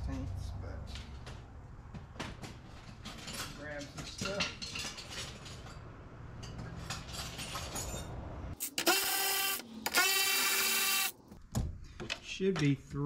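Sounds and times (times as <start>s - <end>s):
cordless power tool whine: 8.7s - 11.1s.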